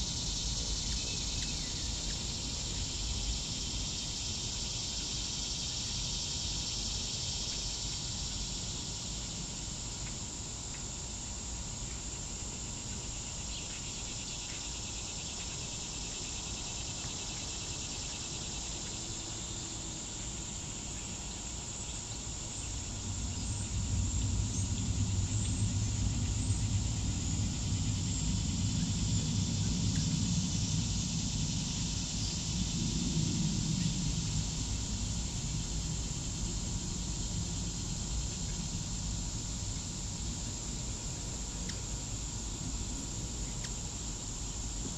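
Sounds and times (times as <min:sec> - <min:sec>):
insects chorus: 0:00.0 - 0:44.9
low rumble: 0:22.9 - 0:32.0.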